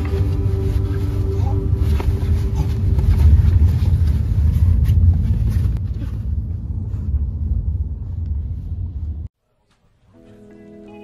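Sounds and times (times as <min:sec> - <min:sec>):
road and tyre rumble: 0:00.0 - 0:09.4.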